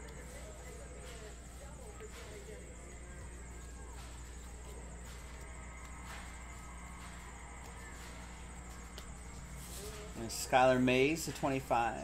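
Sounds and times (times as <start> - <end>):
low room hum: 0.0 - 12.0
trading cards being handled: 4.0 - 10.3.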